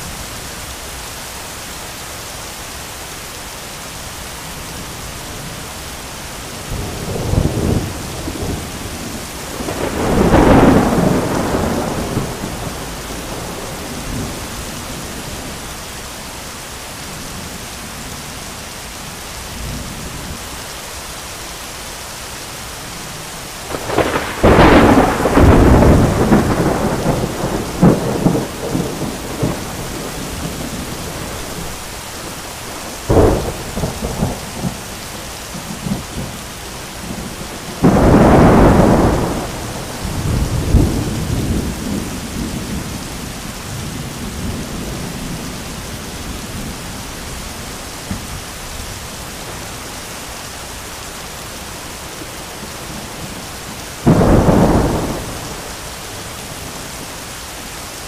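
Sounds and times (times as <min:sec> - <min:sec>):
heavy rain: 0:00.0 - 0:58.0
thunder cracking and rumbling: 0:06.7 - 0:15.6, 0:23.6 - 0:36.4, 0:37.0 - 0:45.7, 0:54.0 - 0:56.8.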